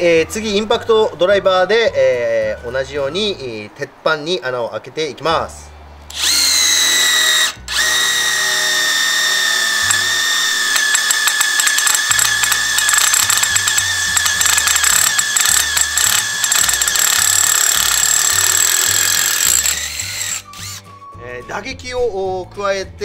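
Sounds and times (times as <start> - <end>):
impact driver motor whining: 6.1 - 20.8
impact mechanism rattling: 10.7 - 20.4.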